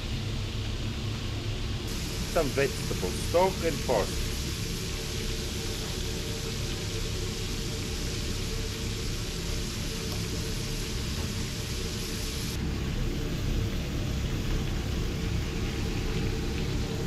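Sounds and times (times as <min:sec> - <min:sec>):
gas range rumbling hiss: 0:00.0 - 0:17.0.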